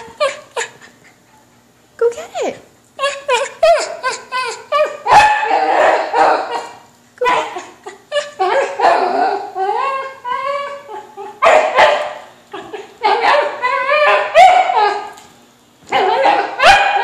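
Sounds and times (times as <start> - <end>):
dog barking: 5.0 - 7.6, 11.4 - 12.2, 15.9 - 17.0.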